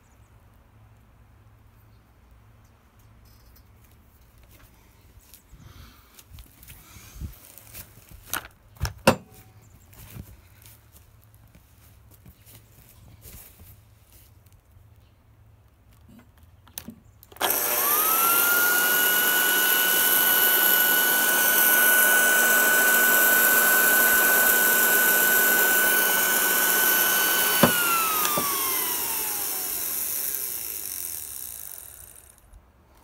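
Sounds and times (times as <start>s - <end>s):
floor polisher motor whining: 17.4s - 32.0s.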